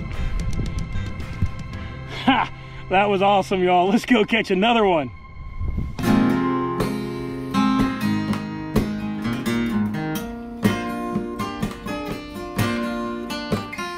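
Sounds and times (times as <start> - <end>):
strummed acoustic guitar chords: 6.0 - 13.9.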